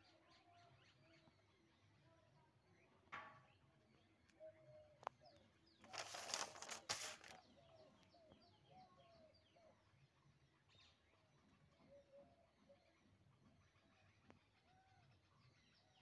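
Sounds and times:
faint birds chirping: 0.0 - 16.0
paper sheet turned over: 5.8 - 7.4.

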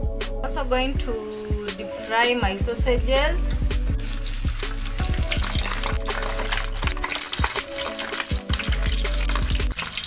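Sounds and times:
oil sizzling and crackling: 3.4 - 10.0.

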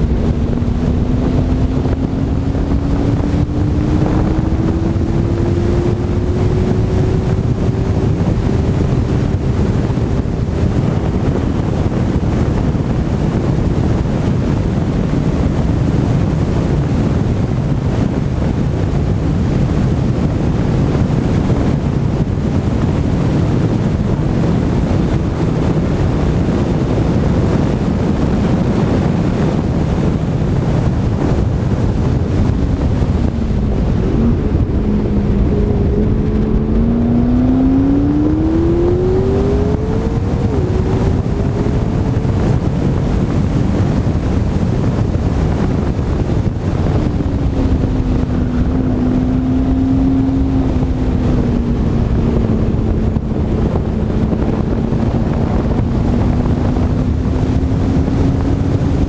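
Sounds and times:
car engine accelerating: 0.0 - 59.0
wind buffeting microphone: 0.0 - 59.0.

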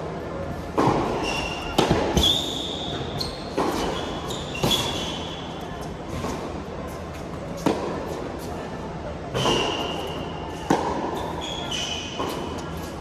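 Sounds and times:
racket striking tennis ball: 0.8 - 2.4
shoe squeaks on court: 1.1 - 5.6, 11.1 - 12.9.

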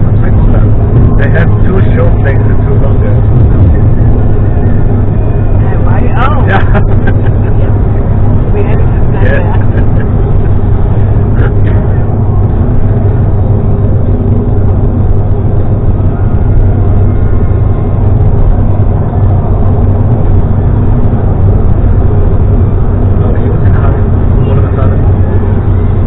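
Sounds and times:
vehicle engine and road noise: 0.0 - 26.0.

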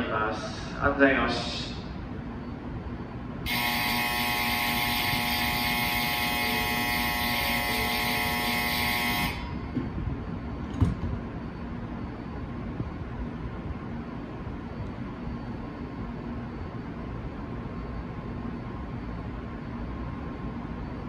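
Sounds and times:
platform departure bell ringing: 3.5 - 9.8.

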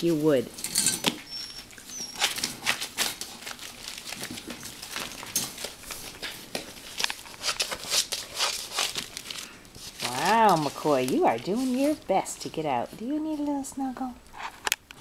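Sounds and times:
plastic tarp crinkling: 2.1 - 12.4.

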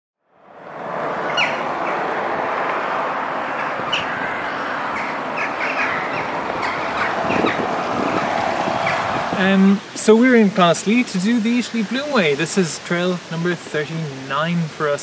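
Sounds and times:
stream running water: 0.4 - 15.0
birds chirping: 0.8 - 10.0.

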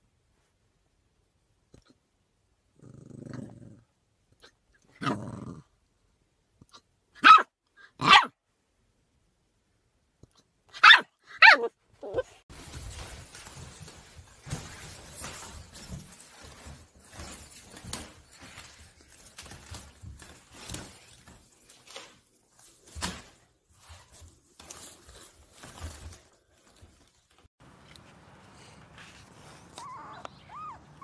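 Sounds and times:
puppy yapping barks: 7.2 - 8.4, 10.7 - 12.3
rustling and small knocks: 12.2 - 30.4.

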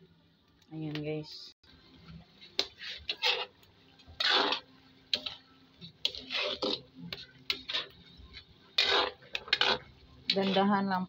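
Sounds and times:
spatula scraping a wok: 2.6 - 10.9.

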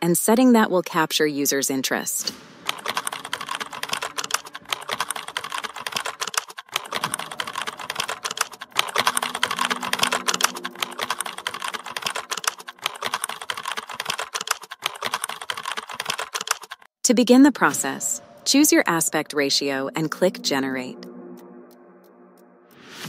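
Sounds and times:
keyboard typing: 2.2 - 16.9.

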